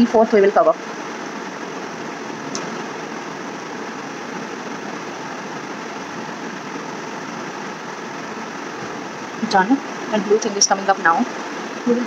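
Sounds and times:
steady background hiss: 0.0s - 12.0s.

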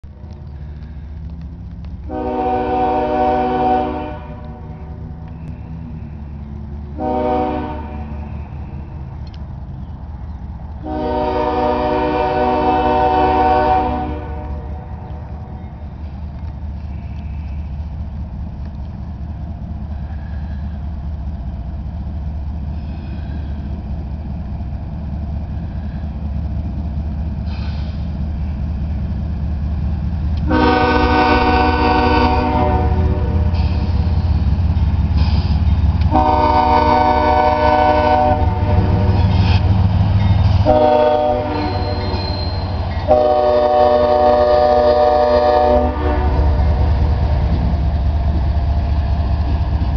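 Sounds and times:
locomotive engine rumble: 0.0s - 49.9s
train air horn blasts: 2.1s - 6.3s, 6.9s - 8.9s, 10.8s - 15.2s, 30.4s - 34.1s, 36.0s - 39.7s, 40.6s - 47.3s.

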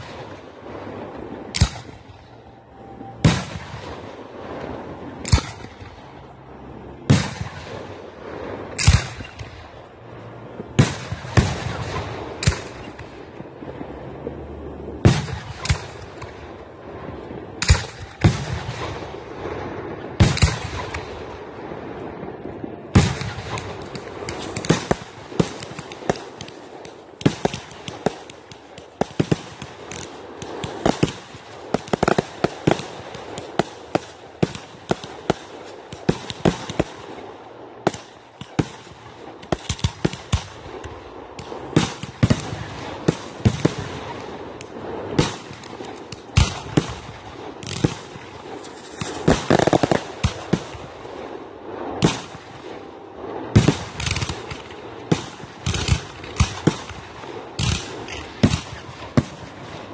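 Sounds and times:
fireworks bangs: 0.0s - 59.9s
fireworks crackle: 0.0s - 59.9s.

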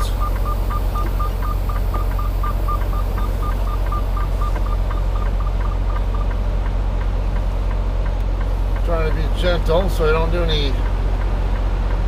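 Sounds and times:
rapid electronic warning beep: 0.0s - 6.4s
truck engine rumbling: 0.0s - 12.0s.

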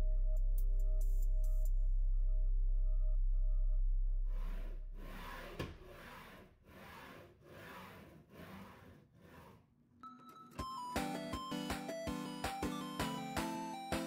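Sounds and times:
linear bearings rolling on rails: 5.2s - 9.7s.

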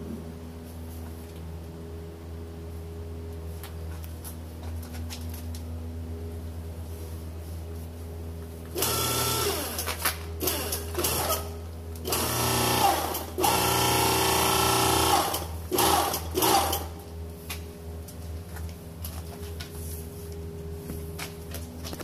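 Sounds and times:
steady low hum: 0.0s - 22.0s
hydraulic pump motor running: 8.7s - 17.1s.

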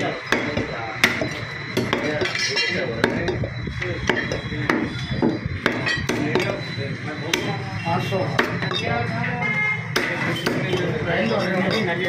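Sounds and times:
cleaver chopping meat on wood: 0.3s - 2.2s, 4.0s - 6.6s, 7.3s - 7.6s, 8.3s - 8.8s, 9.9s - 11.0s.

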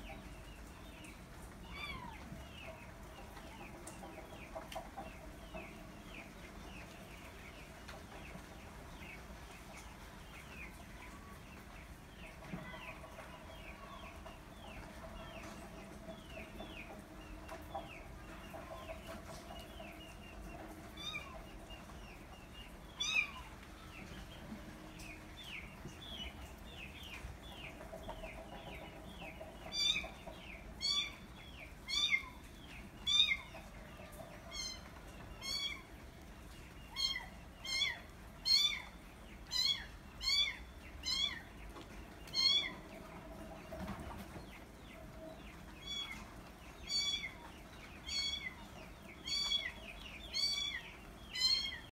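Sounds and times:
chicks peeping: 0.0s - 51.9s.

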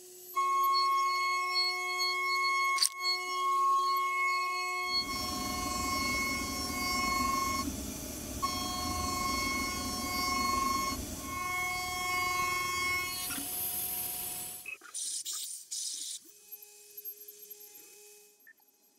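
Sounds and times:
end mill cutting metal whine: 0.4s - 14.6s.

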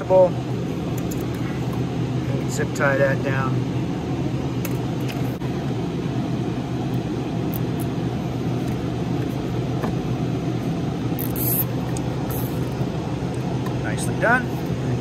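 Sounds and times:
low mechanical hum: 0.0s - 15.0s
cable tie rasping: 11.2s - 12.8s.

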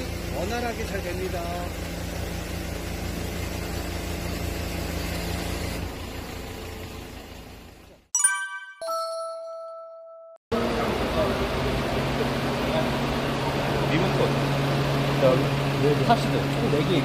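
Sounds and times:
truck engine running: 0.0s - 8.0s, 10.5s - 17.0s
bright electronic chime: 8.2s - 10.4s.

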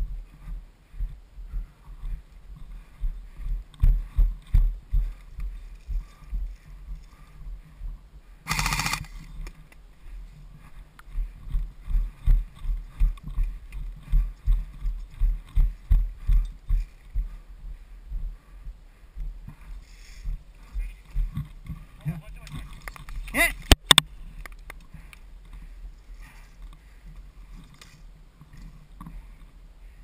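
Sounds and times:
footsteps on dry dirt: 0.0s - 23.3s.

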